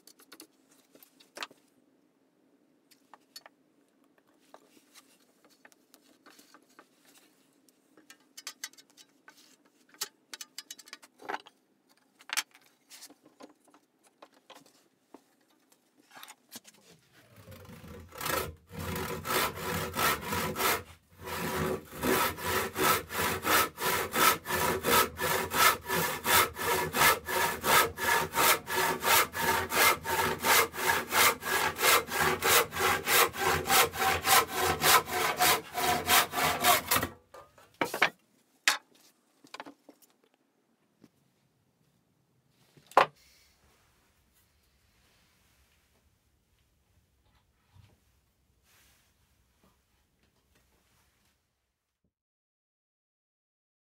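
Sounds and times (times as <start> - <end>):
handsaw cutting wood: 17.4 - 37.2.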